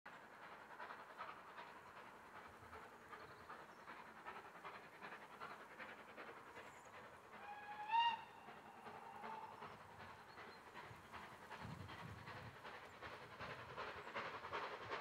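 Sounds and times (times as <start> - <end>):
distant steam locomotive whistle: 7.4 - 9.7.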